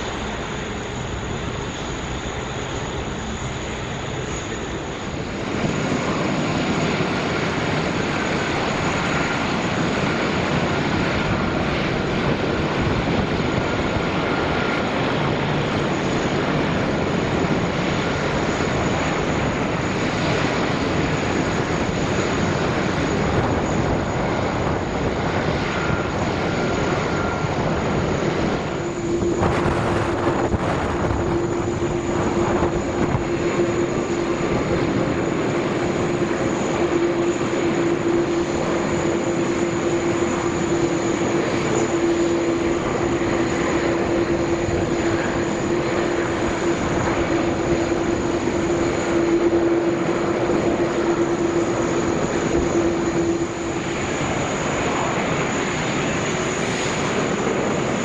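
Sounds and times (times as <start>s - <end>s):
jet airliner engine noise: 0.0s - 58.0s
steady low hum: 0.0s - 58.0s.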